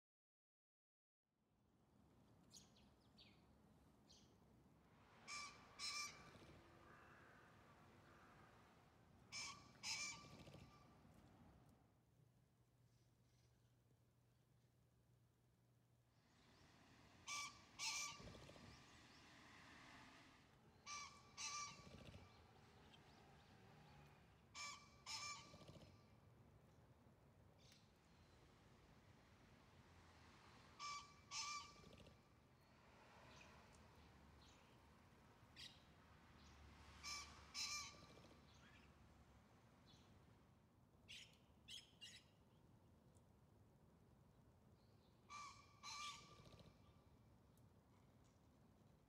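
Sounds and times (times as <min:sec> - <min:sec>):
pheasant crowing: 0:05.3 - 0:06.2, 0:17.3 - 0:18.2, 0:20.8 - 0:22.3, 0:30.8 - 0:31.8, 0:45.3 - 0:46.3
small bird chirps: 0:41.1 - 0:42.4.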